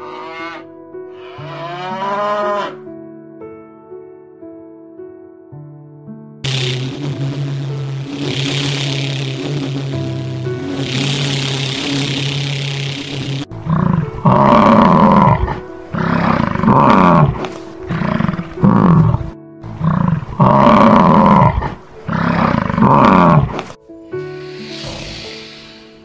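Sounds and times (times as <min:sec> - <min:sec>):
bison bellowing: 0:13.5 - 0:23.8.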